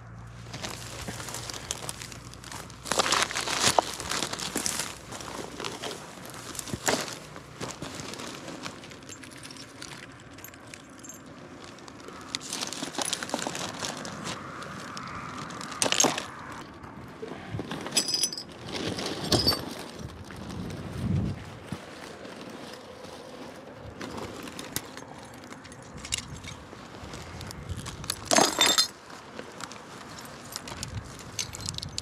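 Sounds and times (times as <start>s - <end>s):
plastic trash bag crinkling: 0.4s - 16.6s, 17.6s - 32.0s
glass pieces clinking: 17.9s - 18.5s, 28.3s - 28.9s.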